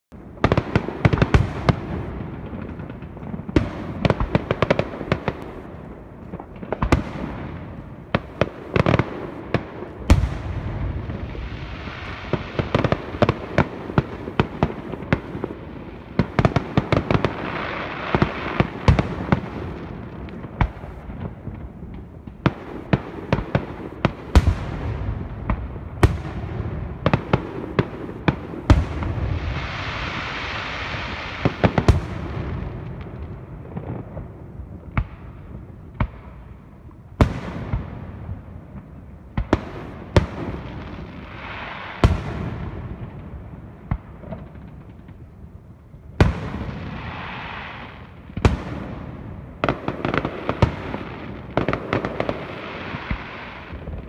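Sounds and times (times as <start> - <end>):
fireworks bursting: 0.2 - 54.0.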